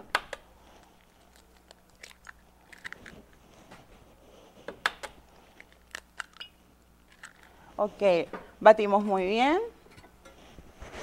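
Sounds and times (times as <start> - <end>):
eggs cracking on bowl rim: 1.3 - 3.1, 4.8 - 7.6.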